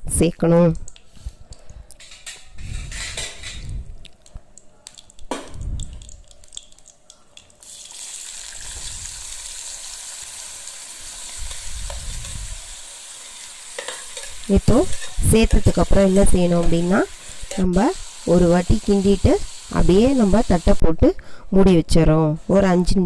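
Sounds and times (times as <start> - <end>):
frying sizzle in hot oil: 5.0 - 21.1
ladle clinking on steel plate: 13.8 - 15.6.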